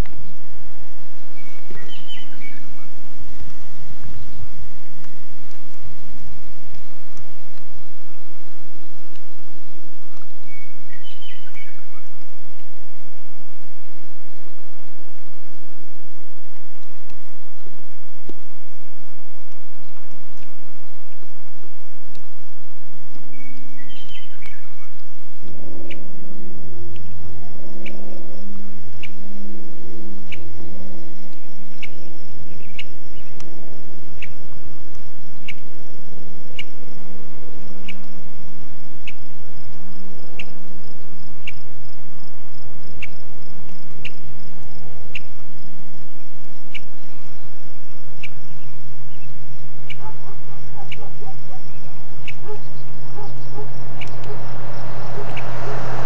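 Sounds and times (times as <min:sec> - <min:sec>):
low steady hum: 0:00.0 - 0:56.0
animal chirping: 0:49.9 - 0:54.2.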